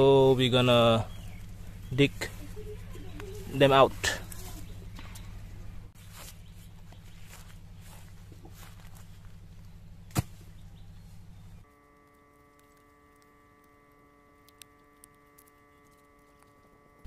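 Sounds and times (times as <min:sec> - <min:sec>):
faint steady hum: 0:00.0 - 0:17.0
digging tool thud on earth: 0:10.1 - 0:10.5.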